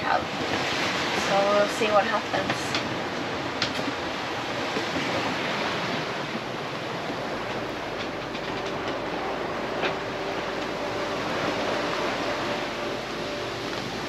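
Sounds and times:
sea water rushing and splashing: 0:00.0 - 0:14.0
soft background music: 0:06.9 - 0:14.0.

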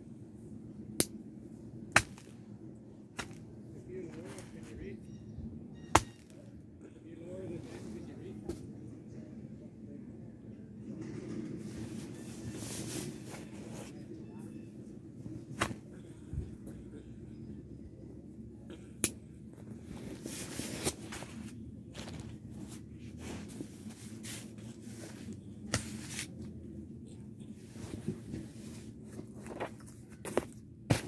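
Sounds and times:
clothing rustling: 0:19.8 - 0:26.4.

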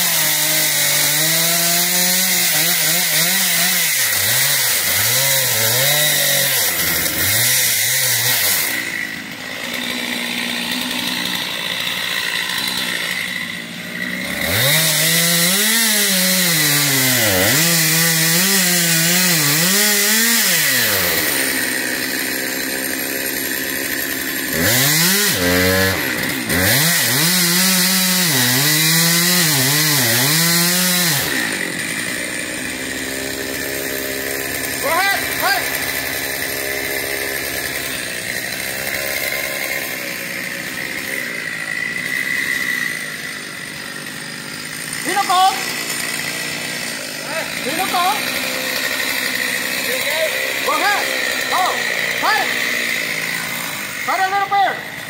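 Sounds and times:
chainsaw cutting wood: 0:00.0 - 0:55.0.

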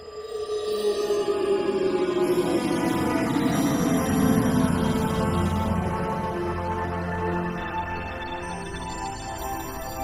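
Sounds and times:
low drone: 0:00.0 - 0:07.5.

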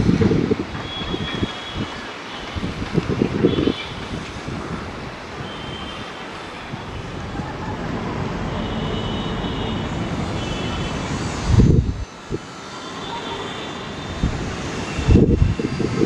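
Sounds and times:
wind buffeting microphone: 0:00.0 - 0:12.6, 0:14.0 - 0:16.0
jet engines rumbling: 0:00.0 - 0:16.0.

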